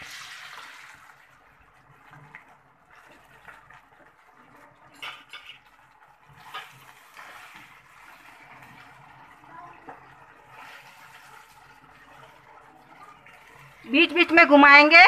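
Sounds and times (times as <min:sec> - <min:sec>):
chicken sizzling in hot oil: 0:00.0 - 0:15.0
wooden spatula scraping a pan: 0:04.9 - 0:09.0, 0:09.8 - 0:14.3.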